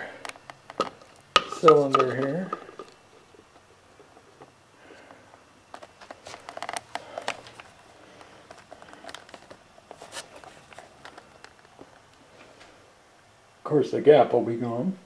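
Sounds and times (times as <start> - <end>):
plastic parts clicking and rustling: 0.2 - 12.1.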